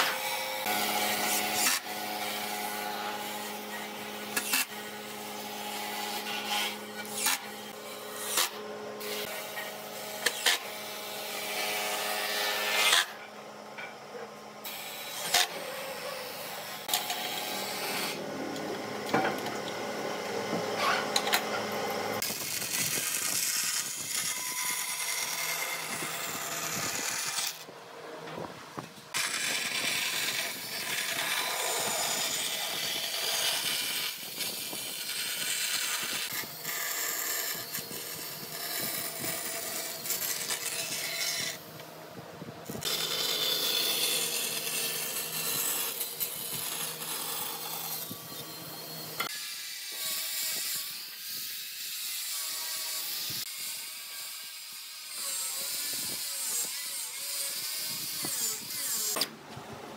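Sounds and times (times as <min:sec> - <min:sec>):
tools scraping and cutting wood: 0:00.0 - 0:19.8, 0:20.5 - 0:27.7, 0:28.4 - 0:41.9, 0:42.6 - 0:53.8, 0:55.1 - 0:59.4
small motor whine: 0:00.0 - 0:51.6.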